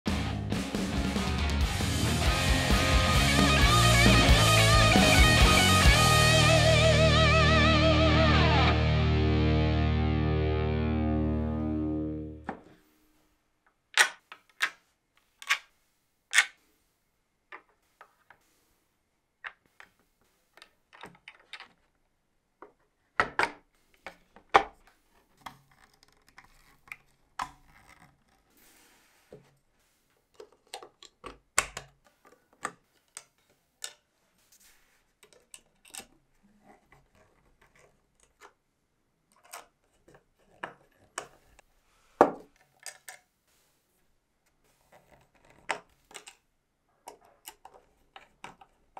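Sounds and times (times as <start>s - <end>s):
plastic parts clicking: 15.4s - 15.7s, 19.4s - 22.0s, 22.6s - 28.5s, 30.3s - 34.1s, 35.2s - 36.2s, 42.5s - 43.3s, 44.9s - 46.4s, 47.0s - 48.9s
plastic parts knocking: 22.6s - 28.3s.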